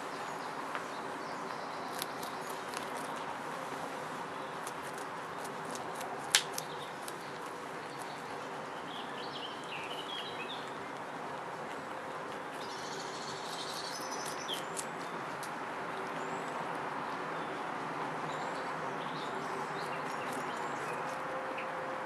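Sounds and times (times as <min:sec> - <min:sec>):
small birds chirping: 0:00.0 - 0:21.8
rabbits crunching carrot: 0:01.8 - 0:16.8, 0:19.4 - 0:21.9.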